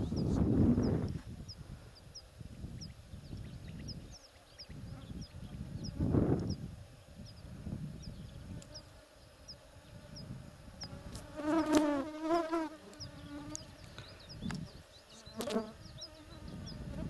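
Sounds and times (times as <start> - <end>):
flying insect buzzing: 3.8 - 17.0.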